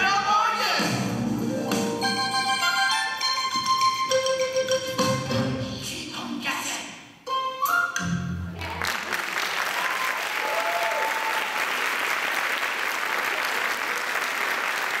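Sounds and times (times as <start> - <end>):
audience applauding: 8.6 - 15.0.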